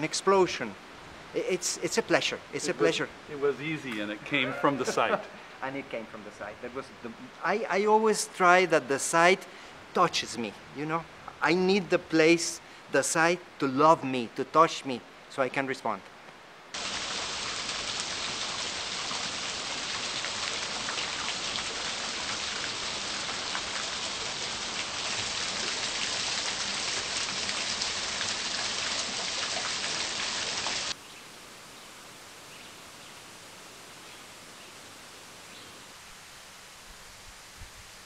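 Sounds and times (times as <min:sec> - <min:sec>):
stream water flowing: 0:16.4 - 0:31.6.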